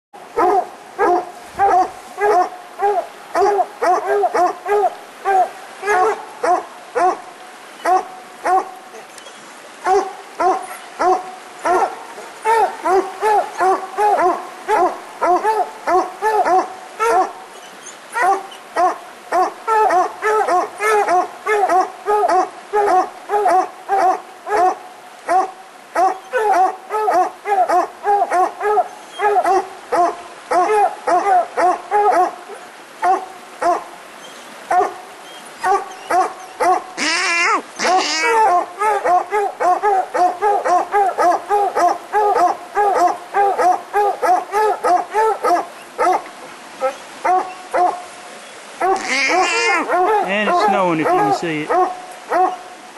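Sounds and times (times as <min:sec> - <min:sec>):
dogs barking: 0:00.4 - 0:07.2, 0:07.8 - 0:08.7, 0:09.8 - 0:17.4, 0:18.2 - 0:32.4, 0:33.0 - 0:33.9, 0:34.7 - 0:35.0, 0:35.6 - 0:36.9, 0:37.8 - 0:48.0, 0:48.8 - 0:52.6
higher dog calls: 0:35.6 - 0:46.2, 0:48.8 - 0:52.7.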